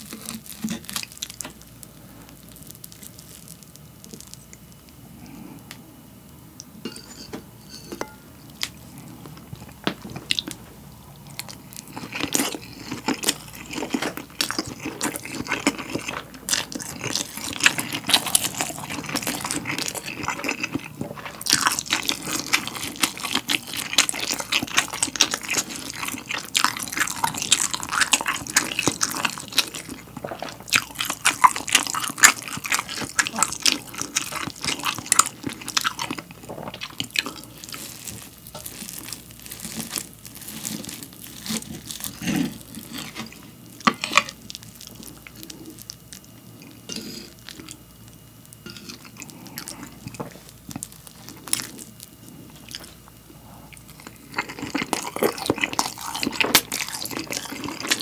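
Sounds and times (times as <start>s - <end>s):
loud wet chewing: 11.4s - 43.4s, 53.6s - 58.0s.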